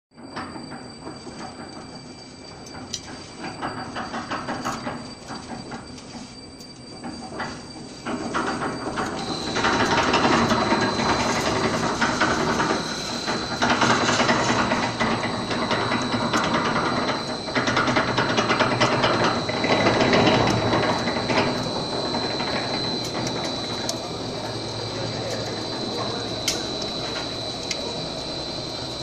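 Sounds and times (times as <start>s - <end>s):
machine mechanical clatter: 0.2s - 29.0s
thin high whine: 0.2s - 29.0s.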